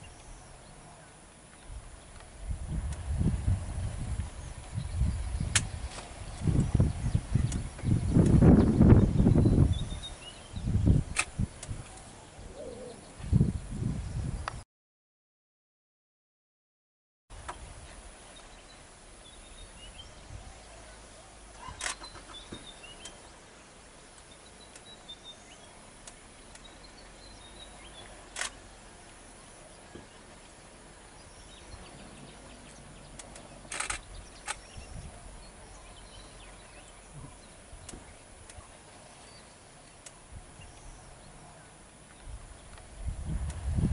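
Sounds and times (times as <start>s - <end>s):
steady background hiss: 0.0s - 14.6s, 17.3s - 43.9s
faint bird chirps: 17.8s - 23.4s.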